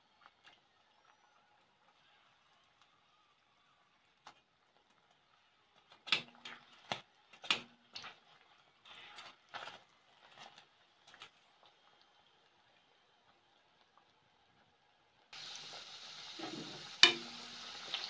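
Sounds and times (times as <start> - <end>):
frying oil hissing: 0.0 - 18.0
metal tongs clicking on frying pan: 6.0 - 7.7, 17.0 - 17.4.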